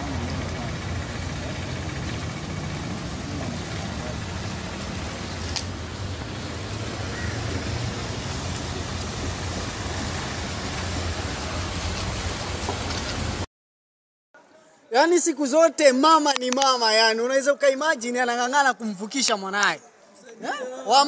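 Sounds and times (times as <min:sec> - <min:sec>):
low vehicle hum: 0:00.0 - 0:13.5.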